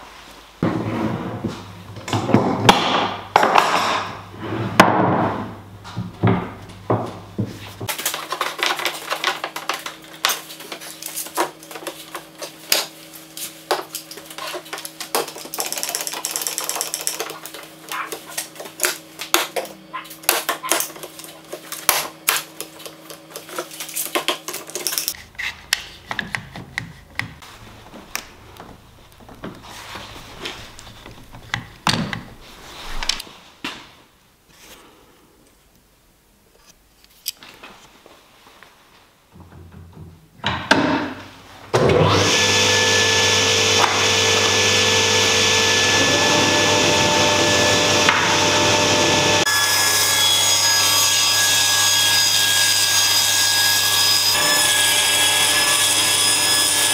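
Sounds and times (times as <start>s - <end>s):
clamps and wood clattering: 13.8s - 27.4s.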